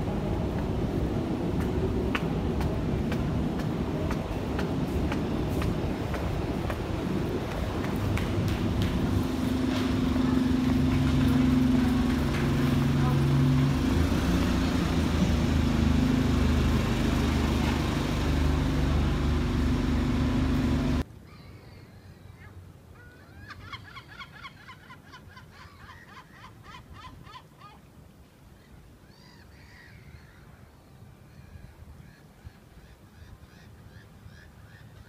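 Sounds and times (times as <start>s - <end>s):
bus engines idling: 0.0s - 21.0s
bustle of bus station: 0.0s - 21.0s.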